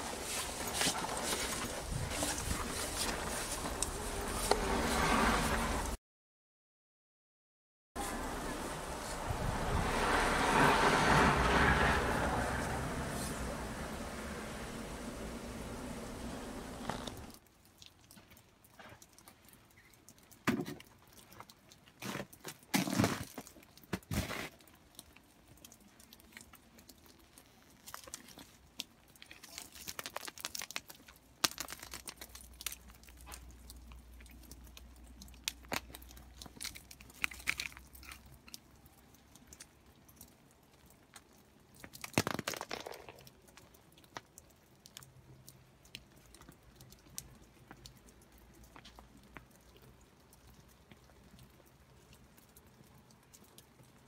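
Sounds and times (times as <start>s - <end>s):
icy twigs and snow crunching: 0.0s - 4.8s, 21.1s - 38.7s.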